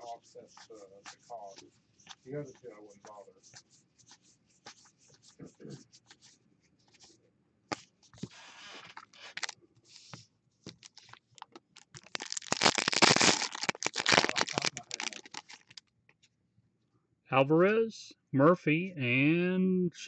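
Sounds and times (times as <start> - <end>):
foil wrapper torn and crinkled: 9.1 - 9.6, 10.7 - 15.8
cards clicking and rustling: 10.7 - 15.8.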